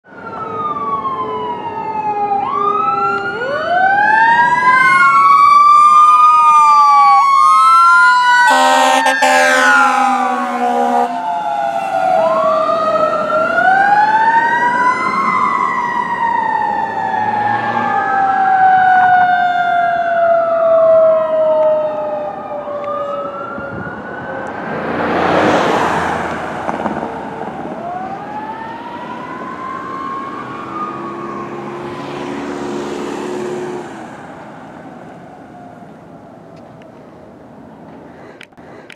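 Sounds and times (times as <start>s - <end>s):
fire engine sirens wailing: 0.0s - 37.9s
truck passing road noise: 0.1s - 38.9s
air horn blast: 8.5s - 11.2s.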